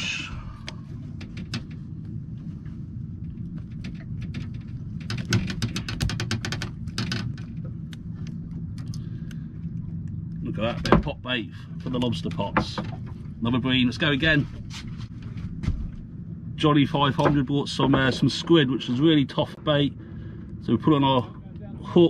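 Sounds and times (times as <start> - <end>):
boat engine low rumble: 0.0 - 22.0
rapid clicking and rattling: 3.2 - 7.7.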